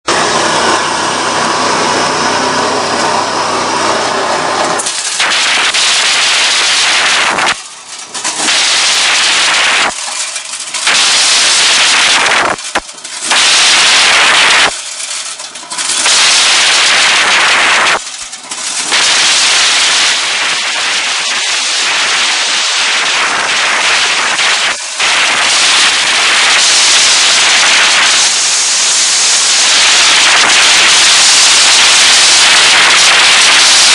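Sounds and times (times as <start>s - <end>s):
corn cobs rattling in sheller: 7.5s - 11.6s, 12.6s - 14.0s, 14.7s - 19.4s.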